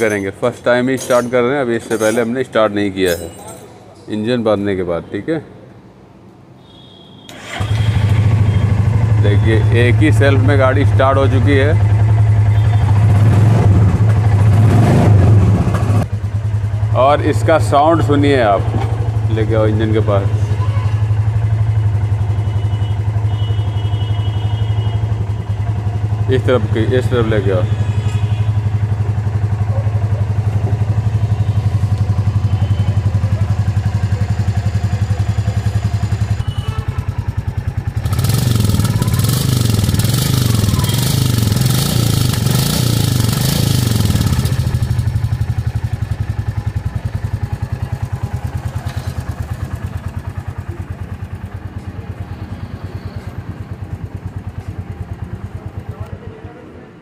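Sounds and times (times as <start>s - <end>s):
motorcycle engine idling: 7.3s - 14.6s, 15.5s - 57.0s
engine revving: 7.3s - 16.1s, 37.9s - 46.0s.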